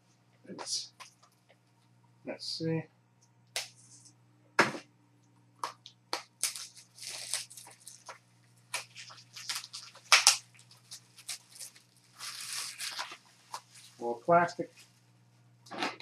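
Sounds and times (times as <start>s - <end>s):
packaging crinkling and rustling: 6.3s - 14.0s.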